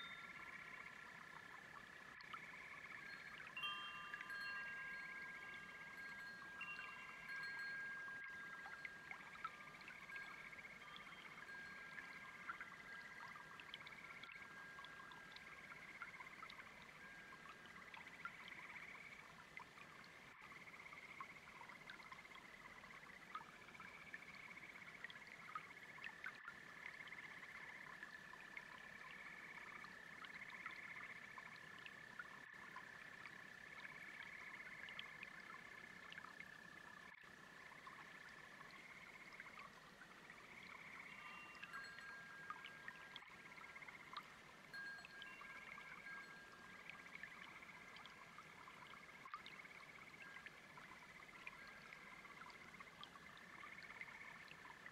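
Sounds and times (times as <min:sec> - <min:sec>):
frog chirps: 0:00.0 - 0:03.6
faint brook: 0:00.0 - 0:54.9
frogs trilling: 0:00.0 - 0:54.9.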